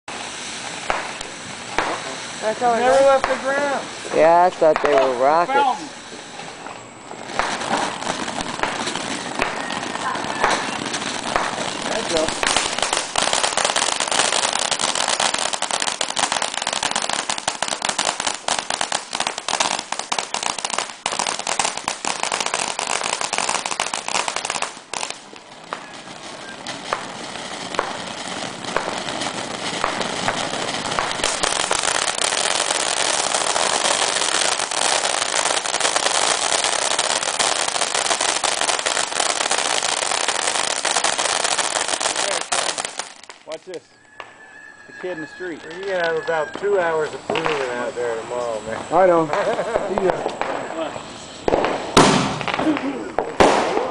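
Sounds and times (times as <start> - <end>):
firework fountain crackling hiss: 0.0 - 53.9.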